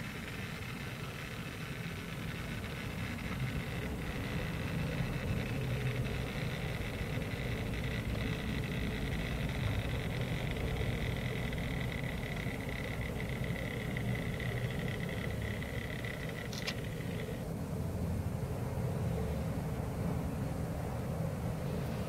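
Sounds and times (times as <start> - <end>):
model train motor whine: 0.0 - 17.5
wheels rumbling on rail: 0.0 - 22.0
sharp click: 13.4 - 17.4.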